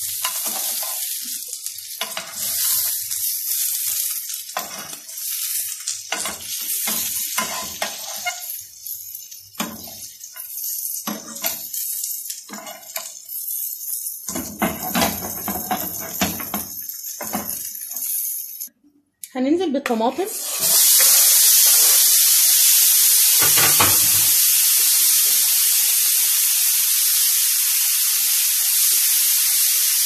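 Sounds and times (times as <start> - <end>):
onions sizzling in hot oil: 0.0 - 18.7, 20.2 - 30.0
tongs scraping a pan: 0.2 - 18.7.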